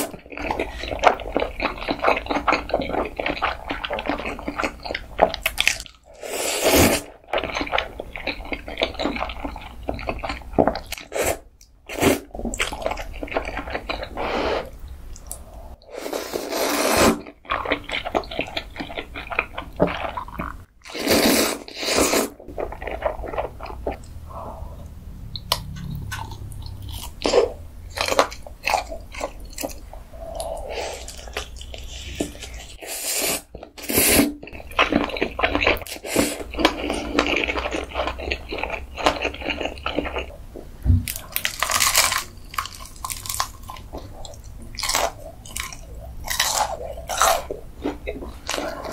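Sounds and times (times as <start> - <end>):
noodle slurping: 15.9 - 17.4, 20.0 - 24.5.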